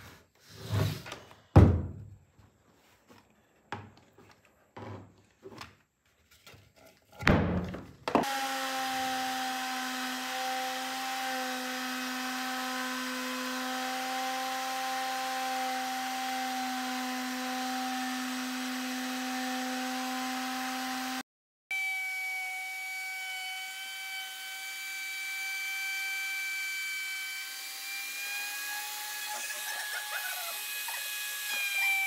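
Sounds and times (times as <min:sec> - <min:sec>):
loud thump: 0:01.6 - 0:02.1
router motor whining: 0:08.2 - 0:21.2, 0:21.8 - 0:32.0.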